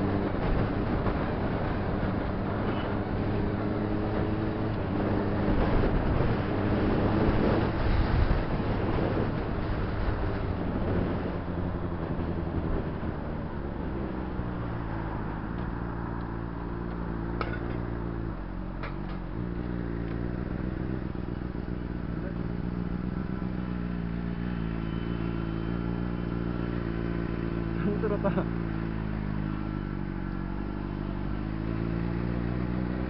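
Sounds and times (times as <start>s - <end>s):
rushing wind noise: 0.0s - 16.6s
motorcycle engine running: 16.6s - 33.0s.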